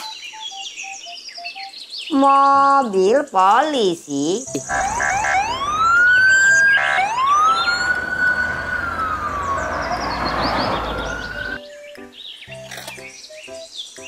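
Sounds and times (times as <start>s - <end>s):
police siren wailing: 4.6s - 11.6s
road noise of passing car: 4.6s - 11.6s.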